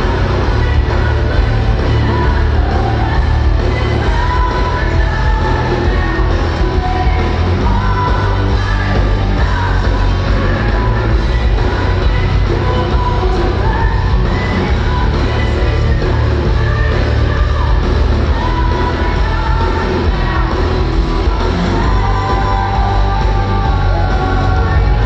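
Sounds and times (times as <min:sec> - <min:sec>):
bass guitar: 0:00.0 - 0:25.0
distorted electric guitars: 0:00.0 - 0:25.0
drums: 0:00.0 - 0:25.0
woman singing lead vocal: 0:00.0 - 0:25.0.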